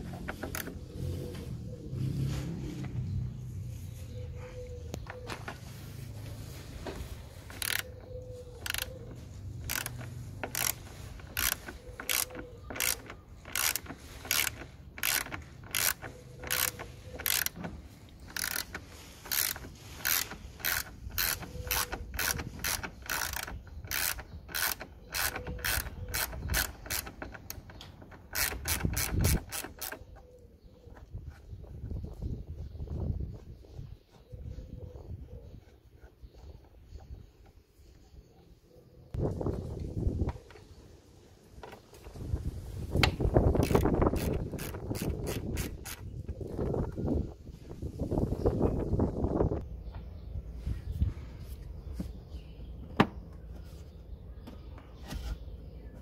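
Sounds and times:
ratchet wrench clicking: 7.5s - 7.9s, 8.6s - 8.9s, 9.6s - 17.6s, 18.3s - 30.0s, 43.6s - 46.1s.

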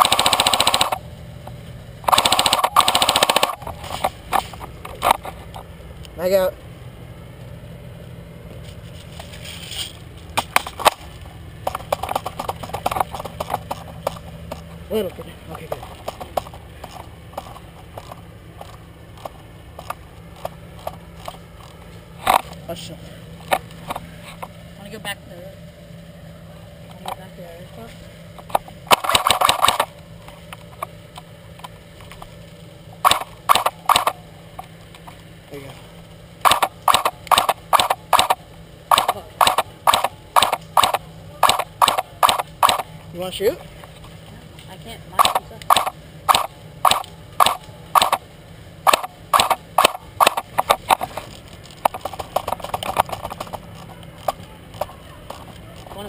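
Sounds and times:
airsoft gun shots: 0.0s - 1.0s, 2.0s - 3.7s, 28.9s - 29.9s, 33.0s - 34.2s, 36.4s - 42.9s, 45.2s - 48.2s, 48.8s - 51.0s
steady low rumble: 0.0s - 56.0s
crunching footsteps: 0.8s - 6.1s, 7.4s - 24.7s, 48.9s - 56.0s.

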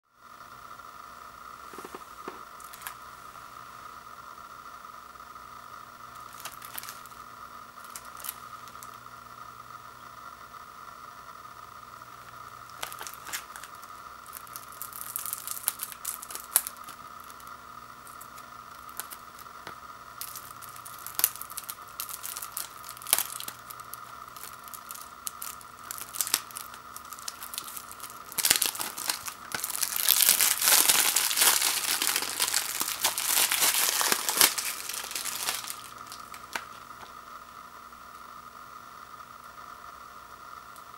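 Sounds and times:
plastic shrink wrap tearing: 1.7s - 3.0s, 6.2s - 7.1s, 7.8s - 9.0s, 12.7s - 37.1s
plastic wrap crinkling: 1.7s - 3.0s, 6.2s - 7.1s, 7.8s - 9.0s, 12.7s - 37.1s.

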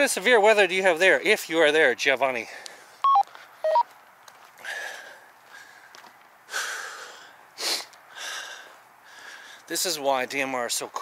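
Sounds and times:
two-note electronic beeps: 3.1s - 3.8s
man breathing hard: 4.6s - 9.7s.

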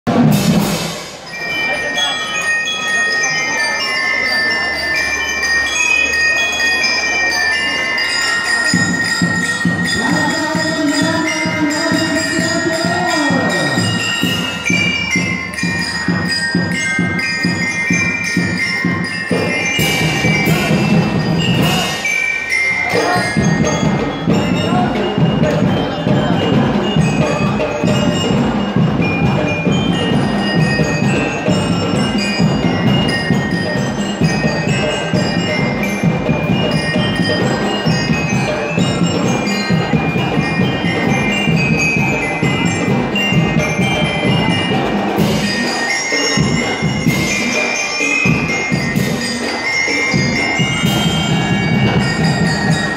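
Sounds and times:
bell lyres playing melody: 0.1s - 52.9s
marching drum beat: 9.2s - 22.0s, 22.9s - 45.7s, 50.1s - 52.9s.

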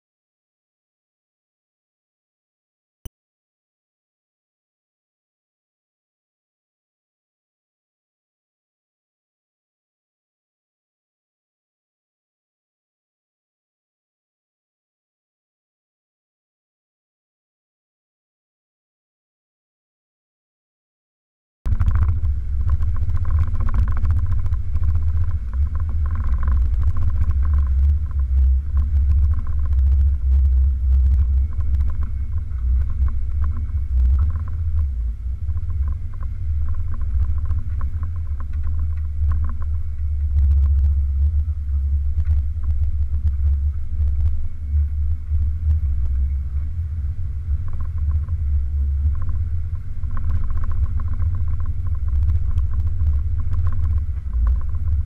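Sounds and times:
vehicle engine rumbling: 21.7s - 55.0s.

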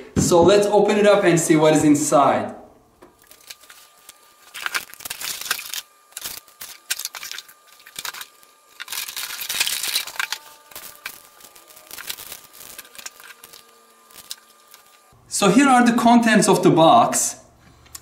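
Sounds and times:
plastic packaging crinkling: 3.2s - 15.1s.

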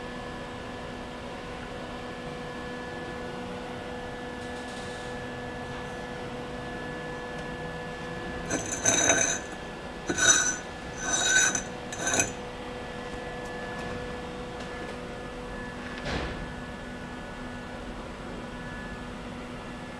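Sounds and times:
steel tube scraping in tube: 8.5s - 12.4s.

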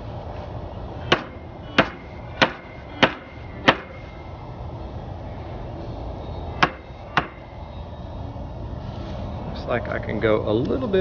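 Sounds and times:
hammer striking wood: 1.1s - 4.0s, 6.6s - 7.4s.

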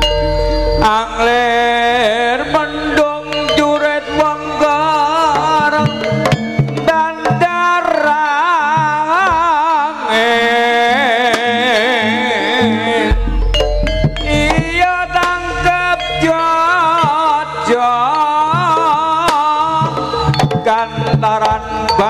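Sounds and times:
wavering lead melody: 0.0s - 7.8s, 12.4s - 22.0s
gamelan ensemble: 0.0s - 9.5s, 10.9s - 22.0s
hand drums: 0.0s - 10.0s, 11.2s - 22.0s.

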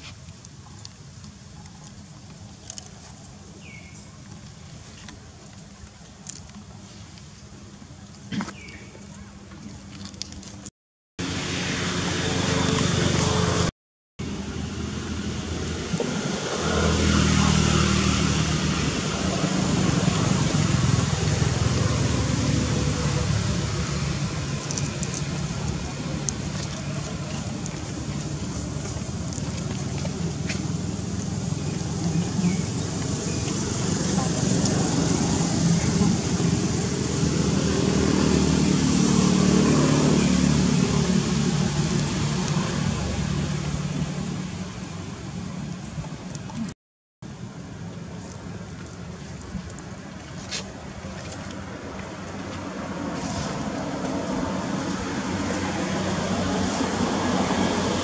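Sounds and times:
vehicle engine running: 11.2s - 46.7s.

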